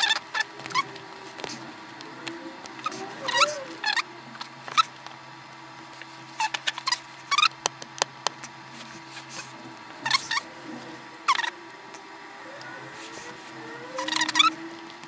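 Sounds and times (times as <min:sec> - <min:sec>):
faint steady hum: 0:00.0 - 0:15.0
short high-pitched squeaks: 0:13.7 - 0:14.6.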